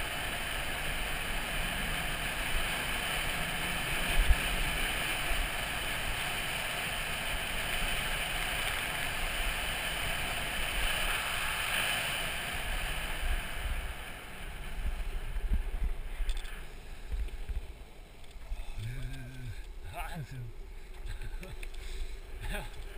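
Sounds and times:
wind rushing over microphone: 0.0 - 16.3
wheels rolling on asphalt: 0.0 - 22.9.

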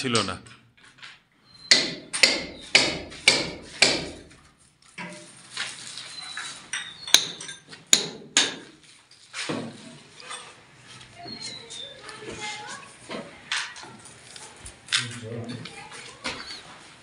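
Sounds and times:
hammer blows ringing: 1.6 - 4.2.

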